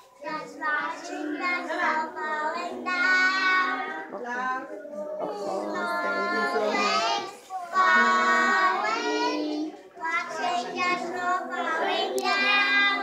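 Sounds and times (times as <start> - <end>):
children singing together: 0.0 - 13.0.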